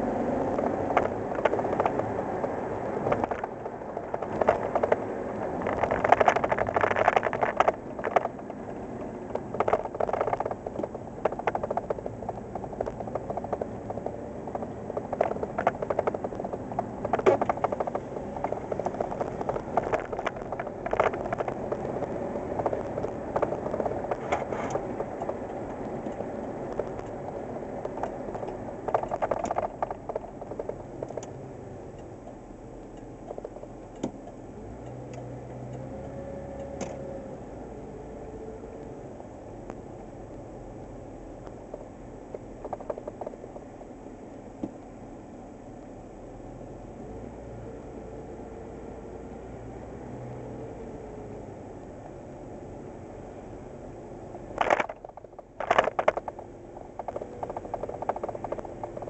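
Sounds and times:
pickup engine and road noise: 0.0s - 59.0s
cab rattles and knocks: 0.5s - 31.4s, 41.5s - 43.7s, 54.4s - 59.0s.

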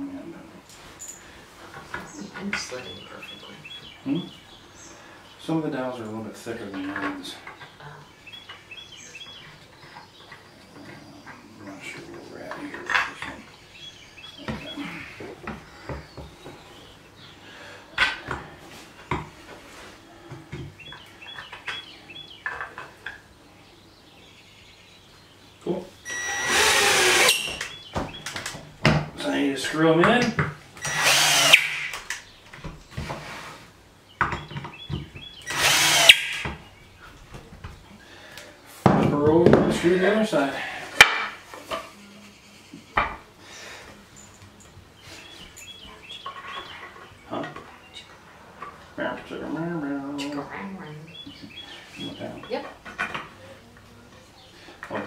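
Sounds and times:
cordless drill driving a screw: 26.1s - 27.5s, 30.8s - 31.9s, 35.4s - 36.5s.

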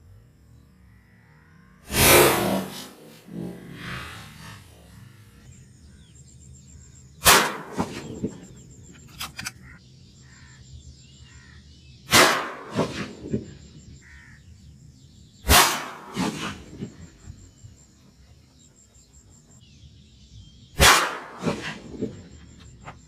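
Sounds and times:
gunshots with echoes: 7.2s - 8.4s, 12.1s - 13.3s, 15.5s - 16.8s, 20.8s - 22.0s.

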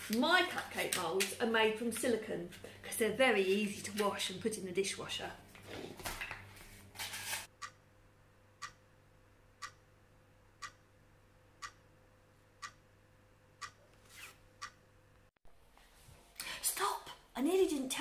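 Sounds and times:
clock ticking: 7.6s - 7.9s, 8.6s - 8.9s, 9.6s - 9.9s, 10.6s - 10.9s, 11.6s - 11.9s, 12.6s - 12.8s.

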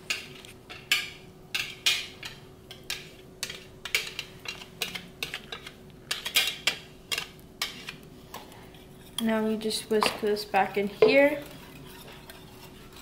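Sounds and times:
metal whisk scraping plastic cup: 11.1s - 13.0s.

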